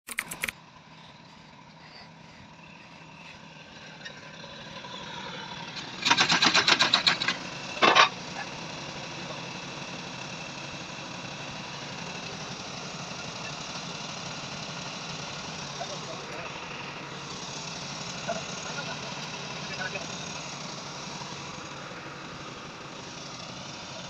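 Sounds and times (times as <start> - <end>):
rapid rattling clicks: 0.0 - 0.6, 6.0 - 8.0
tractor engine running: 0.0 - 24.0.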